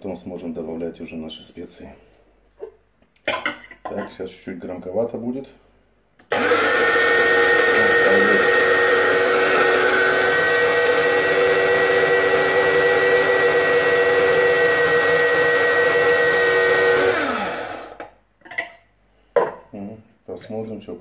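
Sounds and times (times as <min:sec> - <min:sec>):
spice grinder motor whine: 0:06.3 - 0:18.1.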